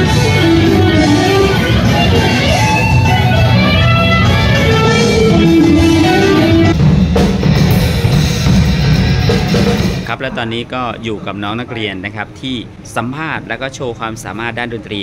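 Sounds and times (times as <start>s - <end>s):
electric guitar solo: 0.0s - 6.8s
drum hits: 0.0s - 10.2s.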